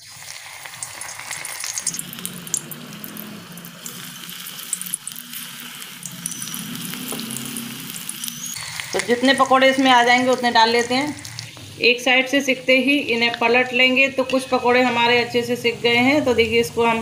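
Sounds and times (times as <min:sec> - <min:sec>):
pakoras sizzling in hot oil: 0:00.0 - 0:17.0.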